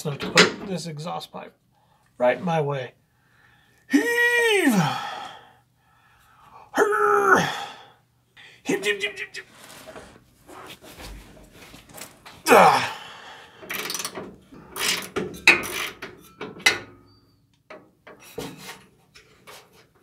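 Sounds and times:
ratchet wrench clicking: 0:13.7 - 0:14.2.

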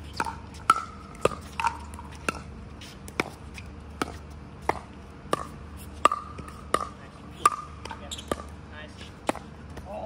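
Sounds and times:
ball bouncing on hard court: 0:00.1 - 0:08.6, 0:09.2 - 0:10.0.

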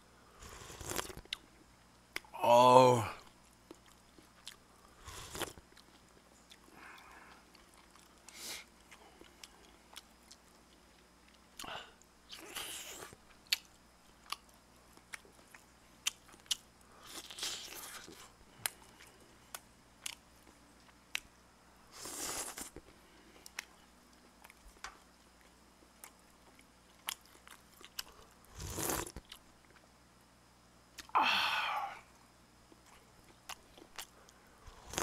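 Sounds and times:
chewing and mouth smacks: 0:03.3 - 0:11.7, 0:12.3 - 0:21.3, 0:22.1 - 0:29.8, 0:32.7 - 0:34.3.

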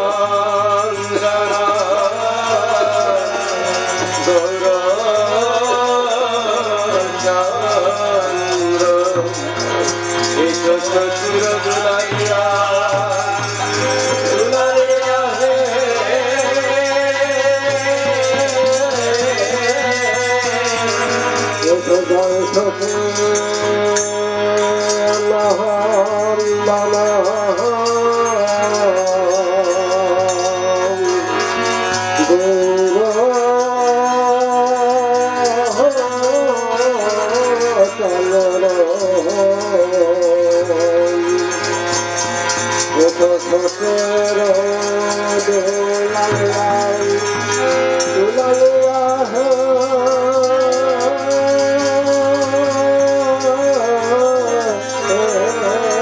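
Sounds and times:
harmonium drone: 0:00.0 - 0:56.0
men singing with vibrato: 0:00.0 - 0:56.0
jingling rattle: 0:00.8 - 0:56.0
hand drum: 0:38.5 - 0:56.0.

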